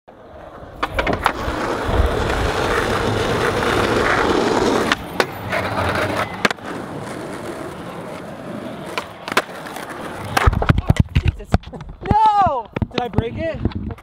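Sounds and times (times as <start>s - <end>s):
skateboard wheels rolling on asphalt: 0.1s - 14.0s
skateboard grinding on ledge: 0.3s - 12.2s
skateboard landing clack: 0.7s - 2.5s, 8.8s - 14.0s
skateboard pop: 8.8s - 14.0s.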